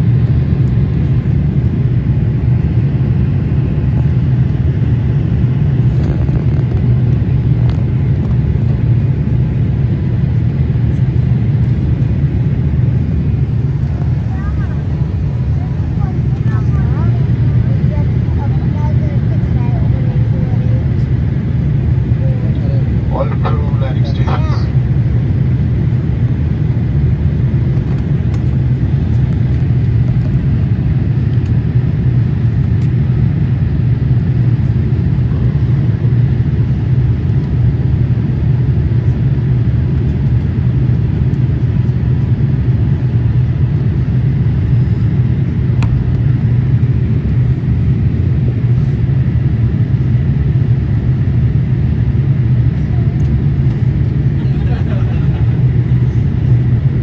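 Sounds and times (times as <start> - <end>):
jet engine drone in cabin: 0.0 - 57.0
rushing airflow: 11.2 - 32.3.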